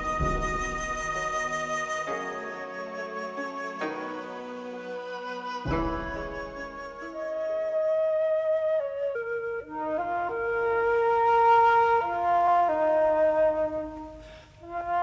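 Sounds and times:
flute playing long held notes: 0.0s - 15.0s.

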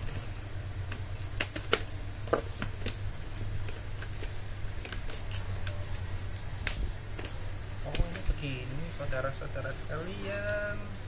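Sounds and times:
steady low hum: 0.0s - 11.0s
knife scratching on packing tape: 3.4s - 6.0s.

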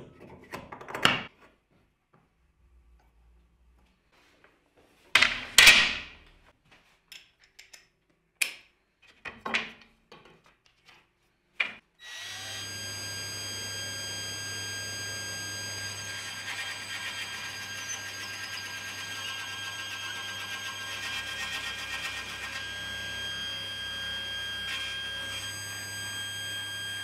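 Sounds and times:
machine motor humming and whining: 12.1s - 27.0s.

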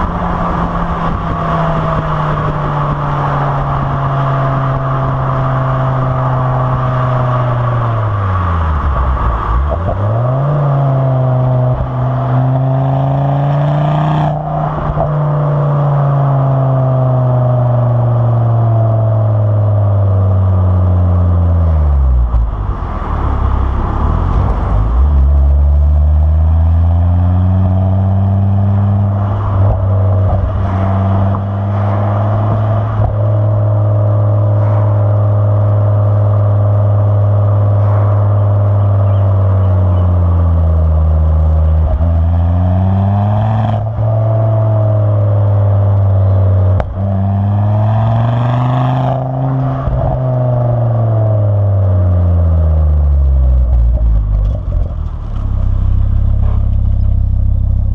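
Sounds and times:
wind rushing over microphone: 0.0s - 16.4s, 21.9s - 25.8s, 28.6s - 35.0s.

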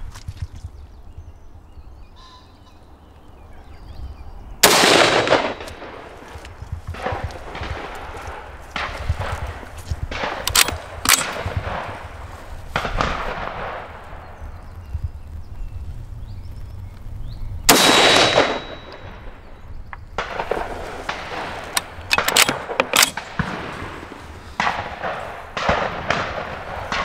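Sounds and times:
quieter gun reports: 4.6s - 6.2s, 17.7s - 19.4s
rifle shot: 4.6s - 6.2s, 6.9s - 14.0s, 17.7s - 19.4s, 20.2s - 27.0s.

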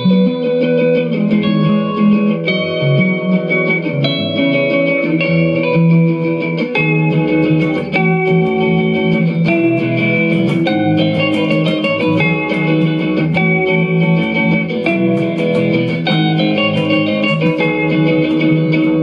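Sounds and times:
guitar instrumental music: 0.0s - 19.0s
bass line: 6.8s - 19.0s.

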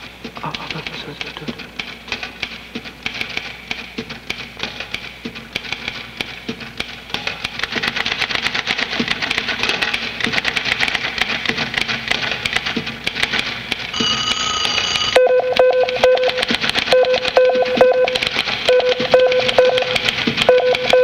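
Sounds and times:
typewriter keys clattering: 0.3s - 14.9s, 15.5s - 21.0s
telephone bell ringing: 14.0s - 16.4s, 17.0s - 21.0s.

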